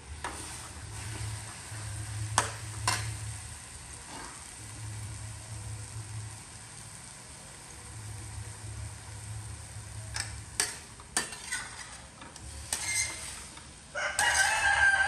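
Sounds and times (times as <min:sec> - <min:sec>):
food sizzling: 0:00.0 - 0:15.0
metal turner scraping a wok: 0:04.0 - 0:04.5, 0:10.1 - 0:15.0.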